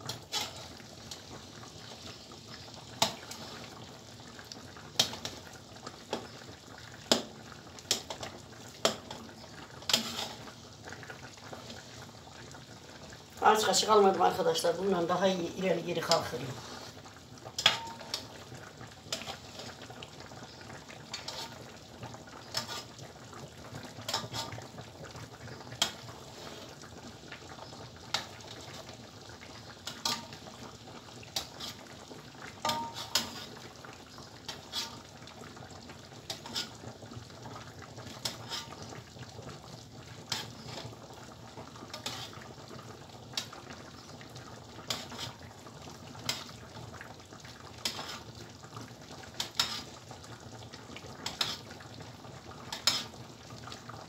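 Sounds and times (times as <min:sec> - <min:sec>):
syrup bubbling: 0:00.0 - 0:54.0
metal spoon clinking on pan: 0:17.6 - 0:18.2, 0:32.6 - 0:33.4.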